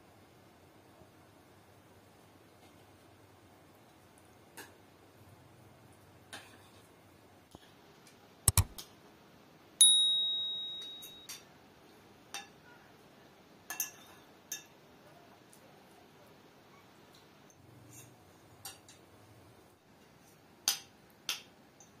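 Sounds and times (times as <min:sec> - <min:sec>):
sharp double click: 0:08.5 - 0:08.8
bell-like ding: 0:09.8 - 0:11.3
cutlery clinking on plates: 0:12.3 - 0:12.6, 0:13.7 - 0:14.8, 0:17.9 - 0:19.0.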